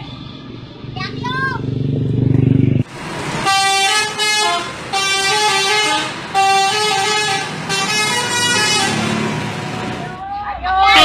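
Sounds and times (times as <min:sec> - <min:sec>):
multi-tone bus air horn: 0:03.4 - 0:10.1, 0:10.8 - 0:11.0.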